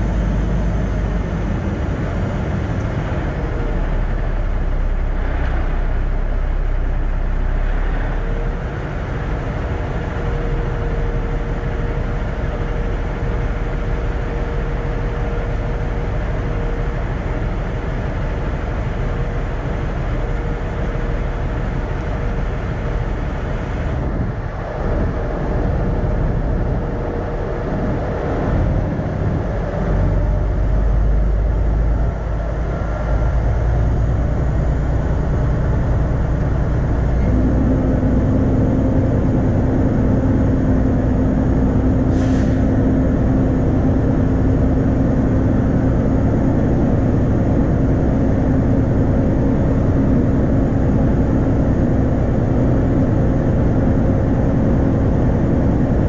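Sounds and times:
truck diesel engine: 0:00.0 - 0:56.0
brief high hiss: 0:42.1 - 0:42.7.

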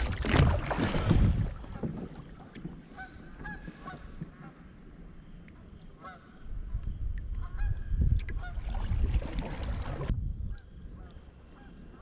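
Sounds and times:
wind rumble on microphone: 0:00.0 - 0:02.2, 0:06.4 - 0:12.0.

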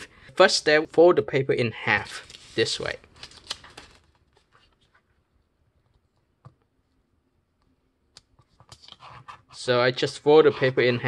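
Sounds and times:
paper rustling: 0:01.9 - 0:05.2.

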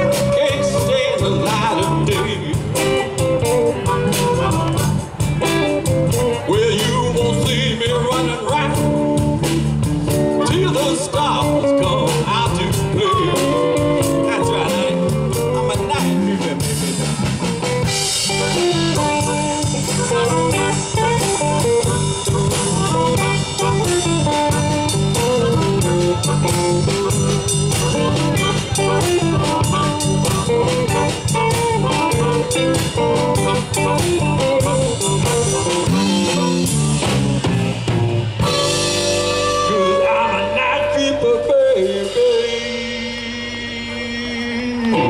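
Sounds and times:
harmonica: 0:00.0 - 0:06.3, 0:17.9 - 0:37.1, 0:38.4 - 0:45.0
drum kit beat: 0:00.0 - 0:45.0
electric guitar: 0:00.0 - 0:45.0.

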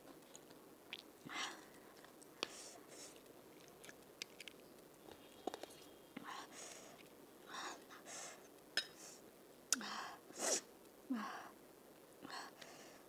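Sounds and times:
sharp hissing breaths: 0:02.4 - 0:03.2, 0:06.2 - 0:09.2, 0:09.8 - 0:10.7
person sniffing: 0:10.4 - 0:10.7.

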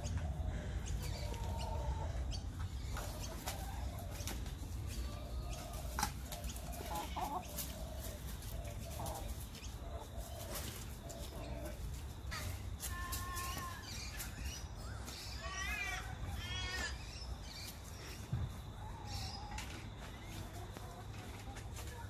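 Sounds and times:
hens clucking: 0:00.0 - 0:22.0.

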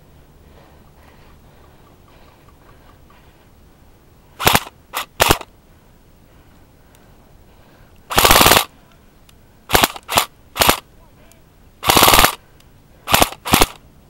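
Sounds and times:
airsoft gun shots: 0:04.4 - 0:05.5, 0:08.1 - 0:08.7, 0:09.7 - 0:10.8, 0:11.8 - 0:12.4, 0:13.1 - 0:13.8.

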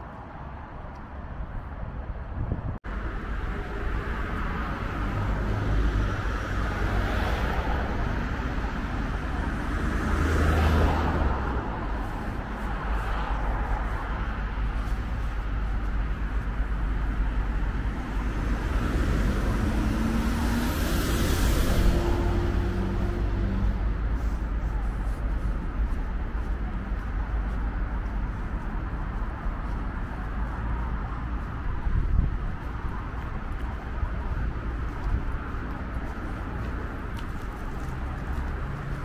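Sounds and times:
road traffic: 0:00.0 - 0:39.0
wind buffeting microphone: 0:00.0 - 0:39.0
vehicle passing close: 0:16.9 - 0:27.6.

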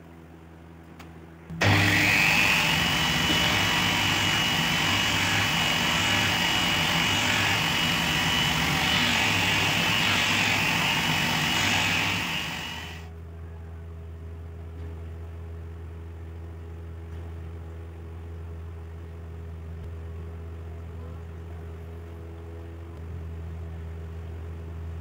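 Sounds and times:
disc sander sanding wood: 0:01.6 - 0:13.0.

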